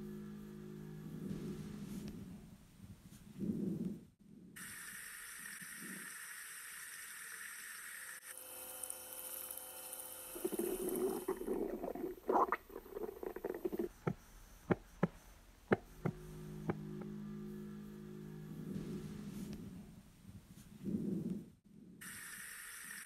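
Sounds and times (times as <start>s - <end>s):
rustling crackling noise: 10.4s - 15.2s
steady hiss: 22.0s - 23.0s.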